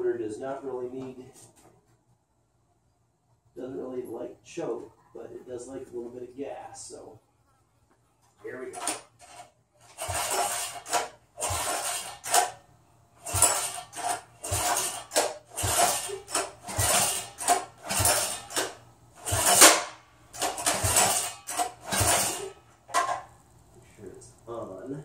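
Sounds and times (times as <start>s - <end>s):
engine recoil cord pulls: 8.7s - 12.6s, 13.2s - 23.3s.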